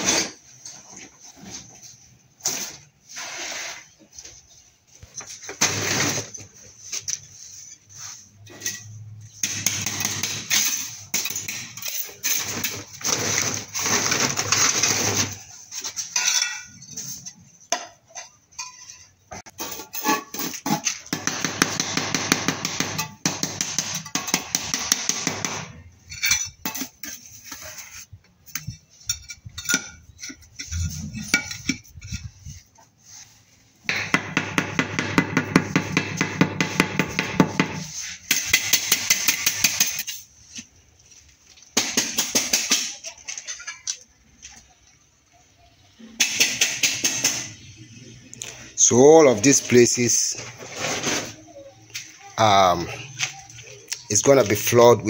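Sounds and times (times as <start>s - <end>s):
trowel tapping and scraping: 17.2s - 32.9s, 33.8s - 40.7s.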